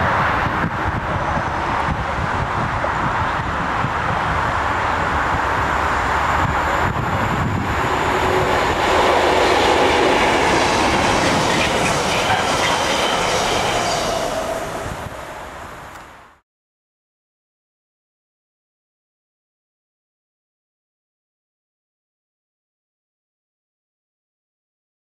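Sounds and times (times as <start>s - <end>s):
diesel locomotive engine: 0.0s - 16.4s
wheels clattering over rail joints: 7.6s - 14.9s.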